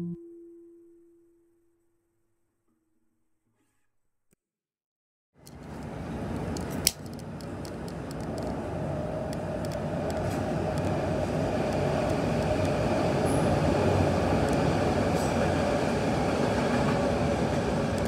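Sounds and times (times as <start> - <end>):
gas lighter clicking: 6.6 - 8.3.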